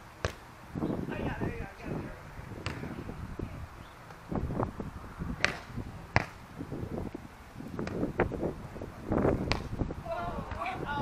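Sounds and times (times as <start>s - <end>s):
hands slapping volleyball: 5.4s - 6.4s, 9.4s - 9.8s.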